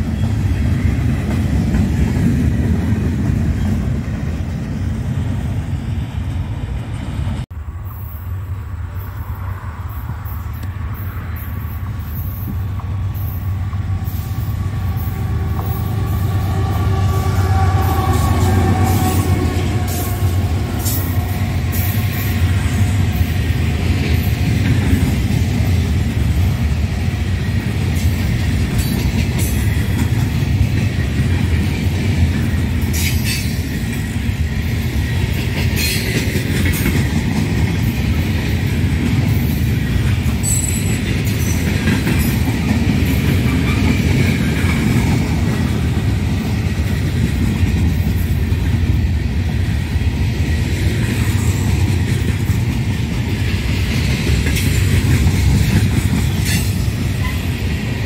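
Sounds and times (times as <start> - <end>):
train wheels rumbling on rail: 0.0 - 58.0
high wheel squeals: 7.8 - 23.2.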